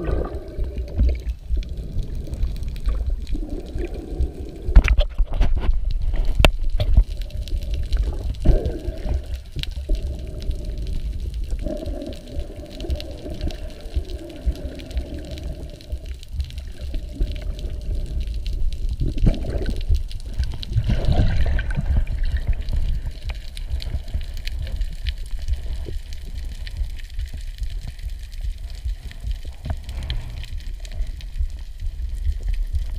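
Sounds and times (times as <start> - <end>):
underwater rush of seawater: 0.0 - 1.3
rushing bubbling water: 0.0 - 32.9.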